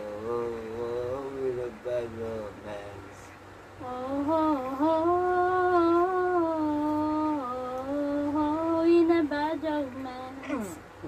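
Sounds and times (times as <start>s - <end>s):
woman humming: 3.8s - 10.8s.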